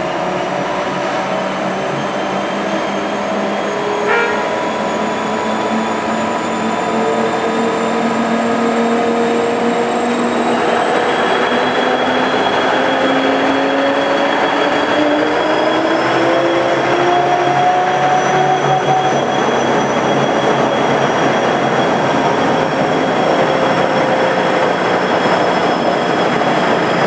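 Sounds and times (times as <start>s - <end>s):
bus running noise: 0.0s - 27.0s.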